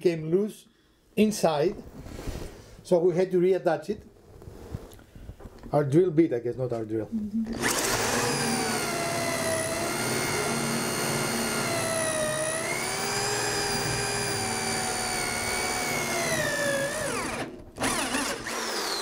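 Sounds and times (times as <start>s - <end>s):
electric drill motor whine: 7.5s - 19.0s.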